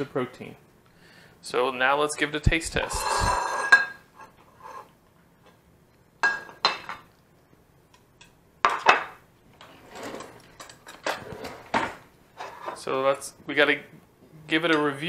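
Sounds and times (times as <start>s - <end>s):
metal spatula scraping glass dish: 2.8s - 4.9s.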